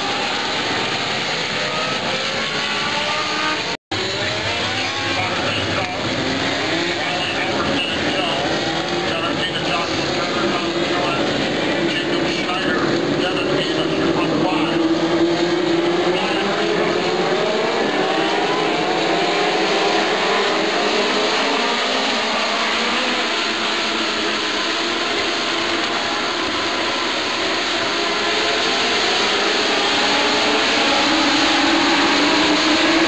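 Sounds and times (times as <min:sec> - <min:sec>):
race car engines at high revs: 0:00.0 - 0:33.0.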